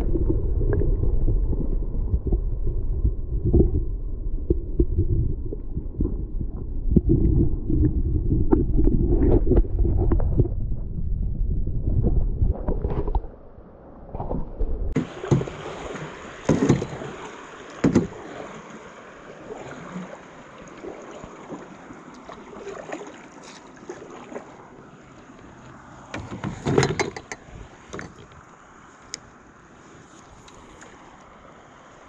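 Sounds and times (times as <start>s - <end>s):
faint water sounds: 11.8s - 32.0s
paddle knocking against canoe hull: 15.0s - 18.4s.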